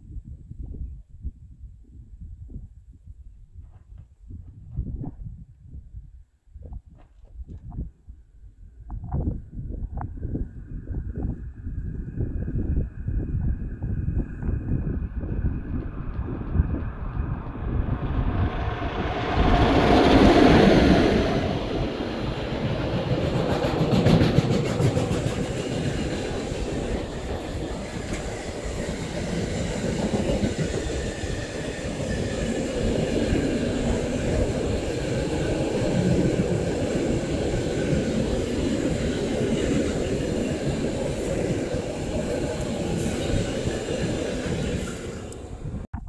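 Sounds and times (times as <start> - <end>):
train wagons rumbling on rails: 13.2 - 45.8
train wheels clicking: 15.2 - 45.5.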